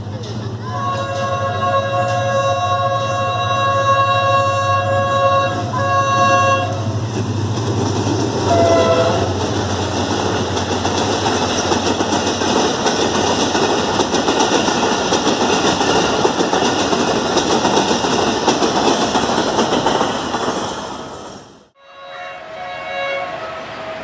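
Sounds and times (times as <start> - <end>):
locomotive engine: 0.0 - 21.7
train horn blasts: 0.6 - 6.9, 8.5 - 9.4, 21.8 - 24.0
wheels clattering over rail joints: 6.9 - 21.0.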